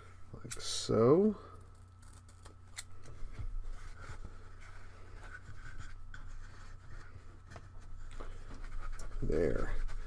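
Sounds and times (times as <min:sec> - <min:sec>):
scratchy rubbing of foam strip: 0:03.7 - 0:10.0.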